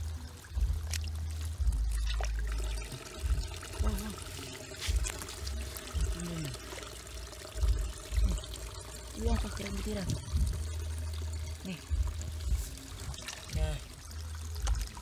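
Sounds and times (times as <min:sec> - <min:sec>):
water pouring and trickling: 0:00.0 - 0:15.0
low thumps: 0:07.5 - 0:08.6, 0:09.2 - 0:11.0, 0:11.9 - 0:13.9.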